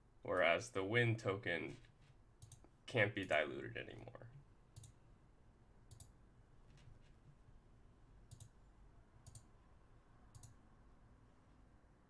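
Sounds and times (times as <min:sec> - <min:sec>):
computer mouse clicks: 0:02.4 - 0:02.7, 0:04.8 - 0:05.0, 0:05.9 - 0:06.2, 0:08.3 - 0:08.6, 0:09.2 - 0:09.5, 0:10.3 - 0:10.6.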